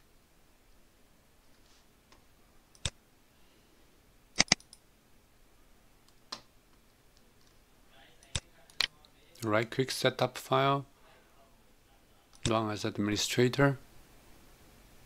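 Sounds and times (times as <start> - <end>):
computer mouse clicks: 2.7 - 3.0, 4.4 - 4.8.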